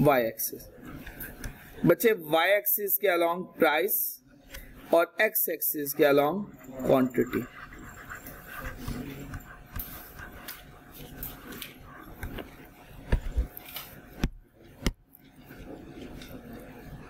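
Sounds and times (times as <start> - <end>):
stylus scratching on tablet: 0.1 - 17.0.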